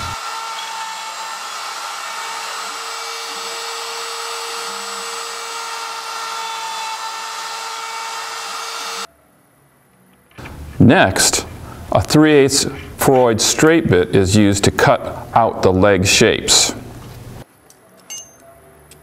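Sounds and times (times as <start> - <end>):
router spindle high whine: 0.0 - 9.1.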